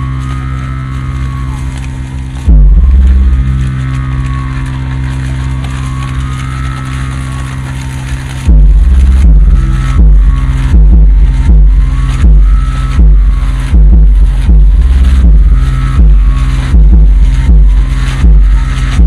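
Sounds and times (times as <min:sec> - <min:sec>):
electronic low drone: 0:00.0 - 0:19.0
heavy bass boom: 0:02.3 - 0:06.7, 0:08.4 - 0:19.0
stuttering low hits: 0:02.4 - 0:19.0.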